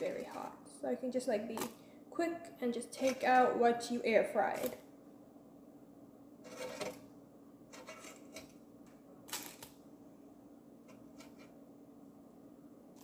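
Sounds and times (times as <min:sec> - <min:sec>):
faint steady hum: 0:00.0 - 0:13.0
food scraping in air fryer basket: 0:06.5 - 0:07.0, 0:07.7 - 0:08.5.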